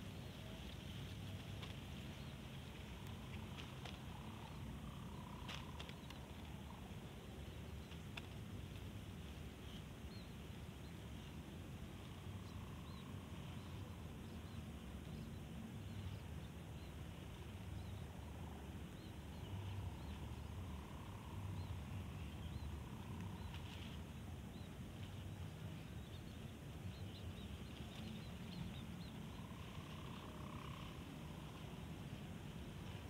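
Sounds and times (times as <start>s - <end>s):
faint bird chirps: 9.4s - 33.0s.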